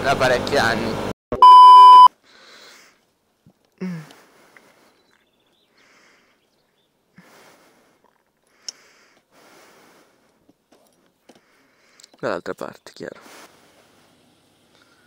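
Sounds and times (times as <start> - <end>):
test-tone beep: 1.3 - 2.1
person sniffing: 2.3 - 3.0.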